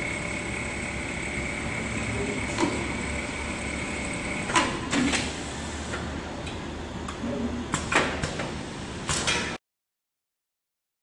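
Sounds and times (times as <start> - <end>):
sewing machine hum with whine: 0.0 - 5.9.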